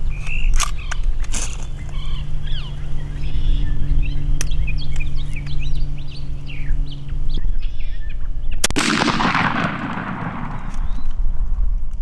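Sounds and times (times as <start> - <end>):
small birds chirping: 0.0 - 8.7, 10.7 - 11.3
shotgun blast with rolling echo: 8.7 - 11.6.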